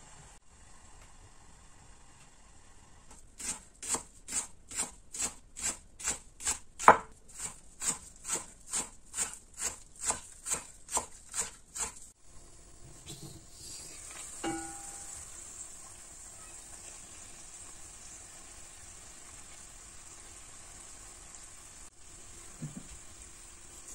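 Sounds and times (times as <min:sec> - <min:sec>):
knife chopping on wooden board: 0:03.4 - 0:12.0.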